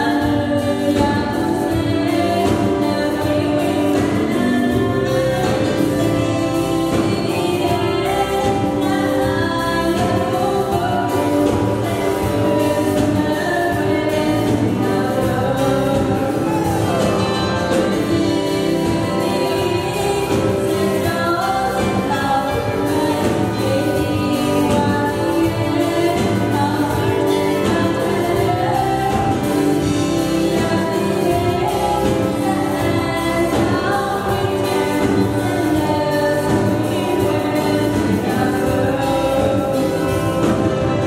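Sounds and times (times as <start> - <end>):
musical accompaniment: 0.0 - 41.0
woman singing into microphone: 0.0 - 41.0.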